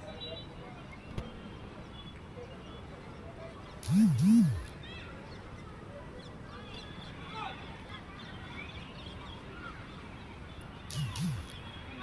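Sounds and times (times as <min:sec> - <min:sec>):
steady outdoor hiss: 0:00.7 - 0:12.0
faint high chirps: 0:10.9 - 0:11.6.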